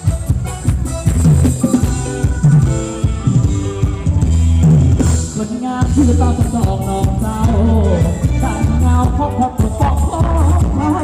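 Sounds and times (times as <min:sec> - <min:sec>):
bass line: 0:00.0 - 0:11.0
drum kit beat: 0:00.0 - 0:11.0
person singing: 0:02.0 - 0:11.0.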